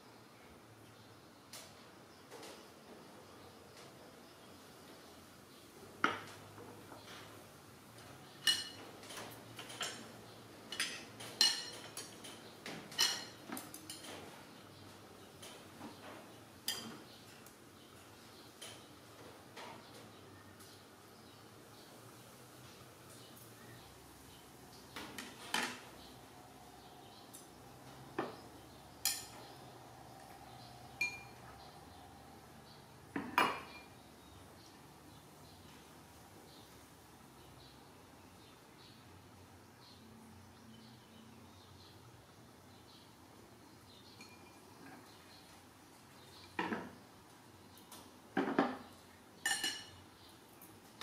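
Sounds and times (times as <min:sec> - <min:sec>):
metal tongs clinking on ceramic dishes: 0:08.4 - 0:10.0, 0:10.7 - 0:14.2, 0:16.6 - 0:17.0, 0:29.0 - 0:29.4, 0:31.0 - 0:31.4, 0:49.4 - 0:50.0.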